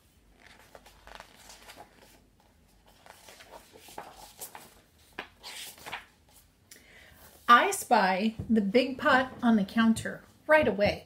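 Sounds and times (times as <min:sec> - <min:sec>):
book pages turning: 0:00.0 - 0:06.5.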